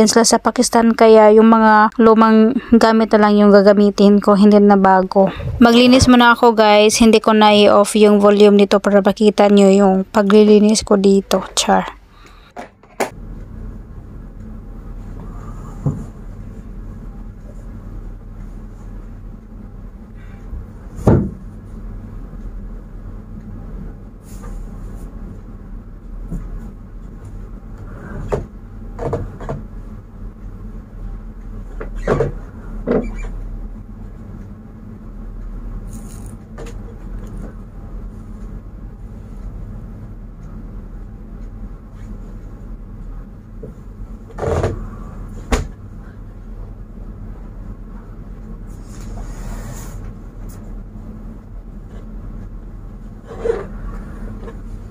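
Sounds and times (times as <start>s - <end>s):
steady low hum: 0.0s - 54.9s
furniture knocks and thumps: 21.0s - 21.5s.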